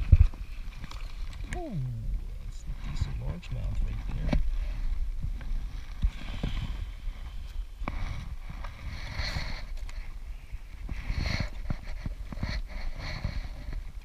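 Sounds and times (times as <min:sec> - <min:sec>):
steady low rumble: 0:01.4 - 0:08.8.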